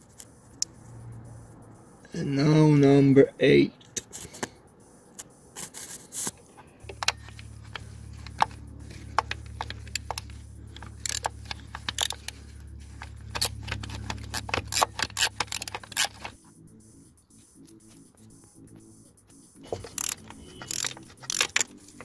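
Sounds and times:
steady low hum: 0.0s - 22.0s
ratchet wrench clicking: 5.2s - 12.4s, 13.0s - 16.4s, 19.8s - 22.0s.

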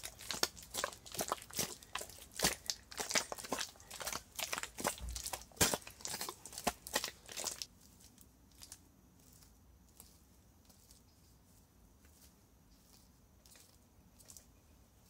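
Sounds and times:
bare feet squelching in wet mud: 0.0s - 8.8s.

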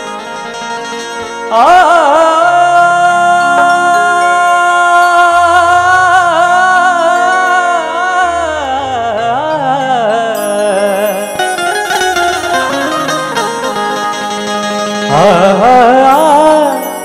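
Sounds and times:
man singing with vibrato: 0.0s - 17.0s
sustained accompaniment chords: 10.3s - 17.0s.

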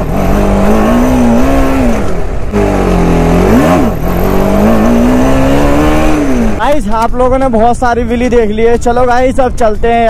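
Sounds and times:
motorcycle engine revving hard: 0.0s - 6.8s.

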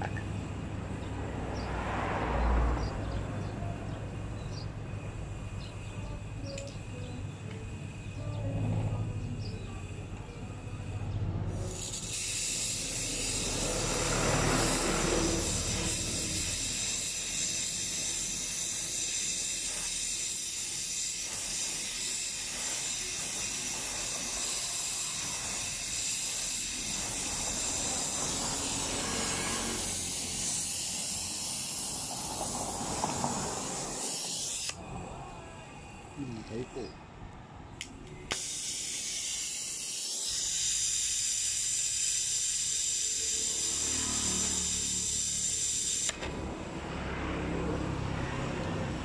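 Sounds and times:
gas torch flame hissing: 0.0s - 37.0s, 37.7s - 49.0s.

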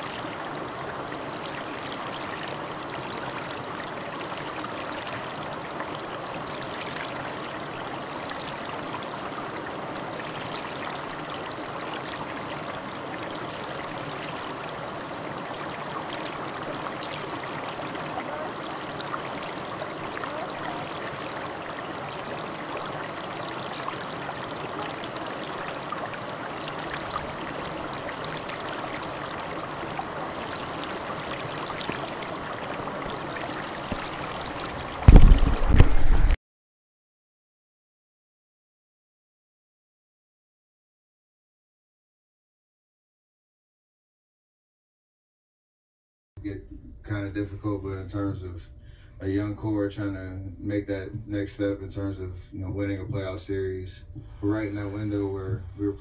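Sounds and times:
steady rushing noise: 33.9s - 36.4s.

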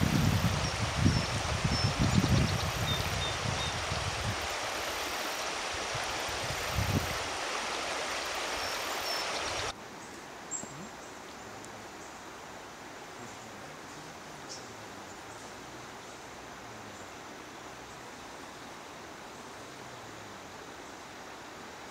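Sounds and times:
stream running over rocks: 0.0s - 21.9s.

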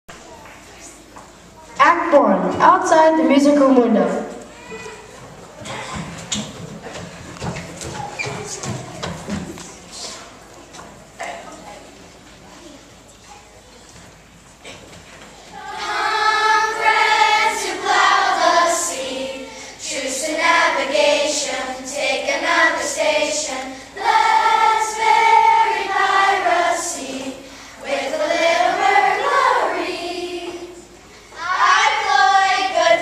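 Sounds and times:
children's choir singing: 15.4s - 33.0s.

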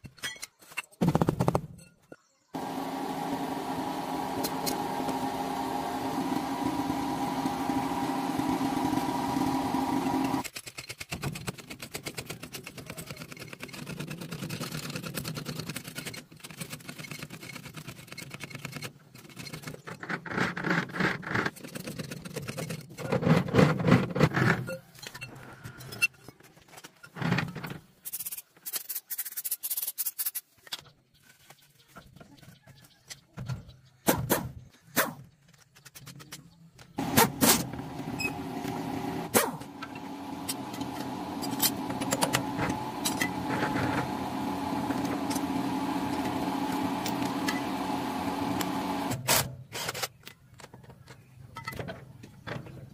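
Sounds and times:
impact wrench bursts: 2.6s - 10.4s, 37.0s - 49.5s
hand-pumped jack clicking: 37.0s - 47.8s.

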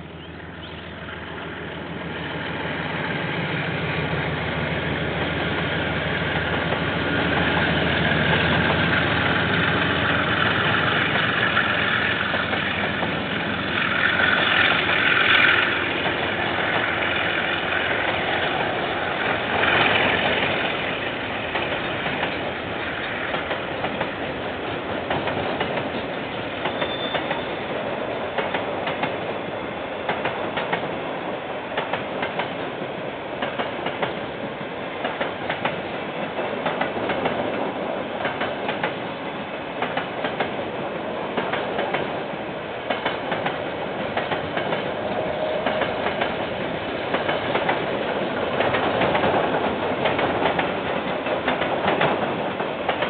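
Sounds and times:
locomotive engine rumble: 0.0s - 30.5s
train wheels clattering on rails: 2.1s - 53.0s.

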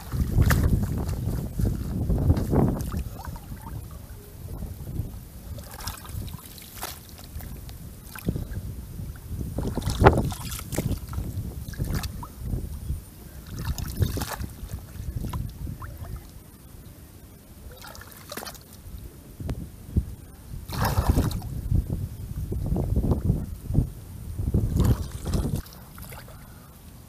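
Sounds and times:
wet mud slaps: 0.0s - 1.2s
muddy water splashing: 0.0s - 16.6s, 17.6s - 19.0s, 20.6s - 21.7s, 24.5s - 27.0s.

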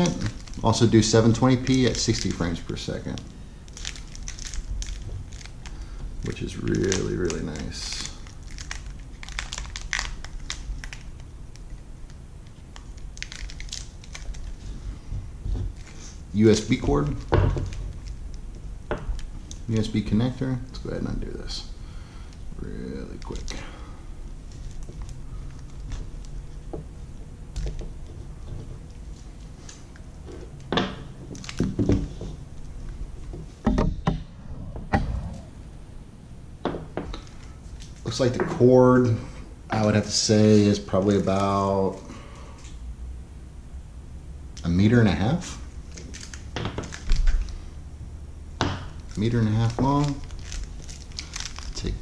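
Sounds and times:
plastic handling crackles and clicks: 0.0s - 14.6s, 23.0s - 23.6s, 27.5s - 32.3s, 45.9s - 47.6s, 49.0s - 52.0s
low handling rumble: 32.1s - 39.6s.

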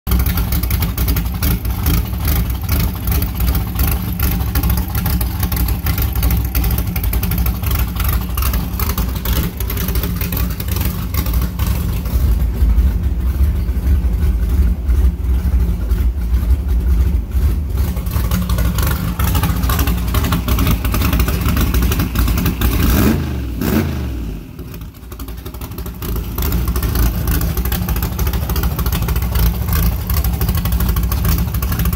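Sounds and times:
vee eight engine running: 0.1s - 24.2s.

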